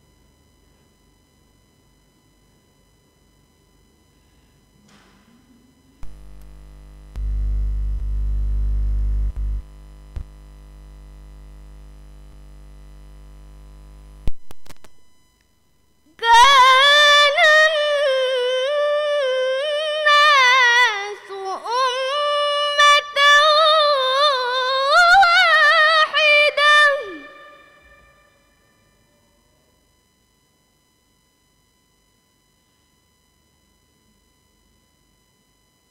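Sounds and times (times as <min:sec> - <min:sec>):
low steady hum: 0:00.0 - 0:35.9
girl reciting melodically: 0:16.1 - 0:27.3.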